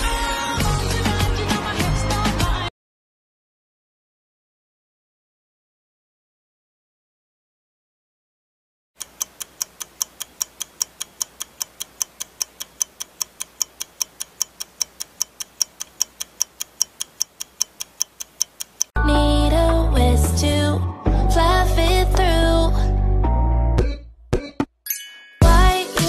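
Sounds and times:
loud pop music: 0.0s - 2.7s, 19.4s - 22.7s, 23.8s - 24.6s, 25.4s - 26.0s
clock ticking: 9.0s - 19.0s.

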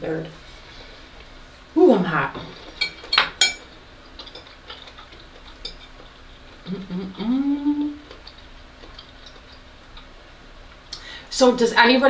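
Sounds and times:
cutlery clinking on plate: 2.8s - 3.7s
person humming while chewing: 6.6s - 8.4s.

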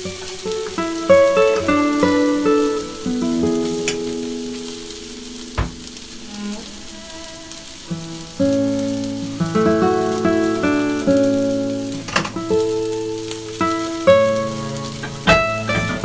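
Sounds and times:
plucked guitar music: 0.0s - 16.0s
rice sizzling in a pan: 0.0s - 16.0s
sharp knock: 5.6s - 5.8s.

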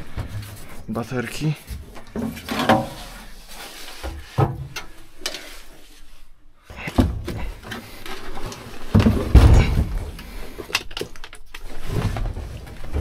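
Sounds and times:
batteries clunking and knocking: 6.7s - 13.0s.

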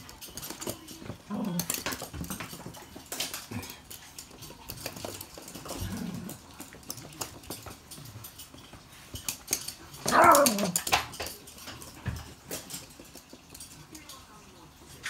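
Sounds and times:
claws clicking on hard floor: 0.0s - 15.0s
dogs growling and whining: 1.2s - 2.1s, 5.4s - 6.6s, 9.9s - 11.1s.

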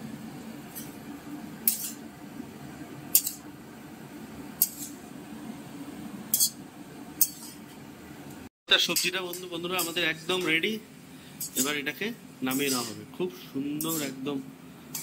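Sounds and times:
sizzling in hot oil: 0.0s - 2.2s, 2.9s - 7.8s, 8.8s - 15.0s
steady low hum: 0.0s - 15.0s
metal spatula scraping a pan: 1.6s - 2.0s, 3.1s - 3.4s, 4.6s - 5.0s, 6.3s - 6.6s, 7.2s - 7.6s, 8.9s - 10.6s, 11.4s - 11.8s, 12.5s - 13.1s, 13.8s - 14.2s.

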